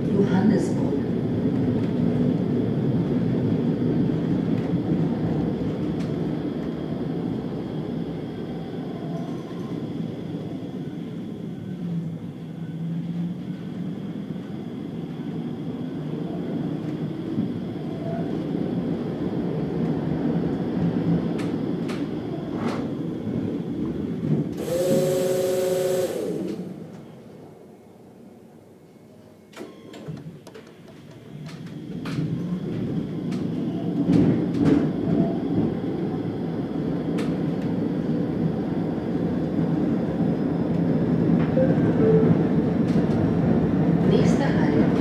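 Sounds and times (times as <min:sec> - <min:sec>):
tram wheels rumbling on rails: 0:00.0 - 0:45.0.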